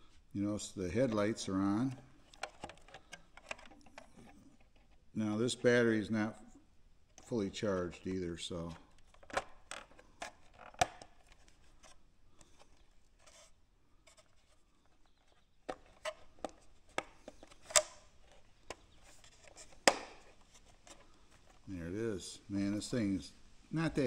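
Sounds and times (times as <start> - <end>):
faint rubbing: 11.3 - 23.2
plastic clicks and taps: 15.7 - 21.0.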